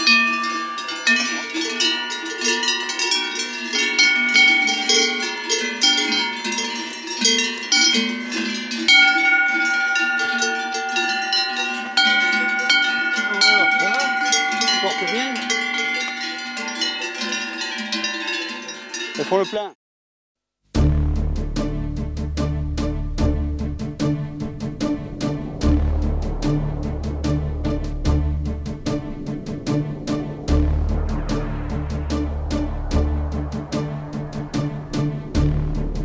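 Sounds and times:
cowbells clanking: 0.0 - 19.7.

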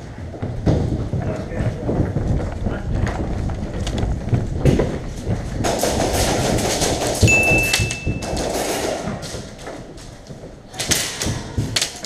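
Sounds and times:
running footsteps on hard floor: 0.0 - 12.0
high-pitched beep: 7.3 - 8.3.

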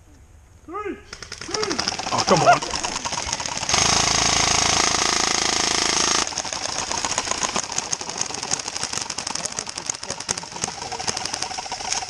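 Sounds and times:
airsoft gun full-auto burst: 1.1 - 12.0.

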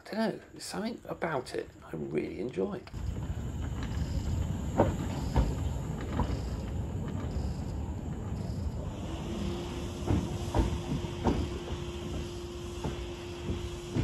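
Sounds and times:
steam locomotive rumbling: 2.9 - 14.0
faint steam hiss: 8.3 - 14.0.

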